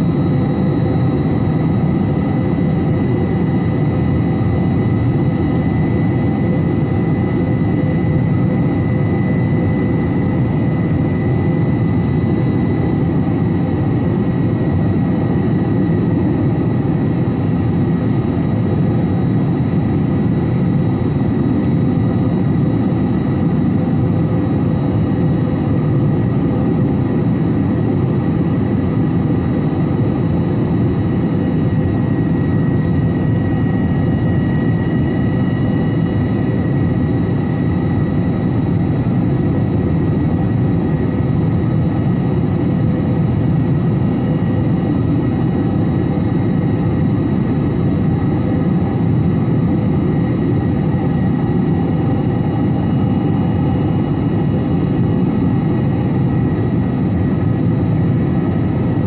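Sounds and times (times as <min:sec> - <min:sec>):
airliner engine and airflow rush: 0:00.0 - 0:59.0.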